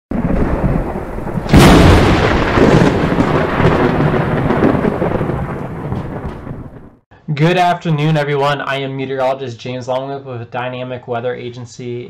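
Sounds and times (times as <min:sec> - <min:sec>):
rumbling hiss of thunder: 0:00.1 - 0:07.0
thunder crack and rumble: 0:00.1 - 0:07.0.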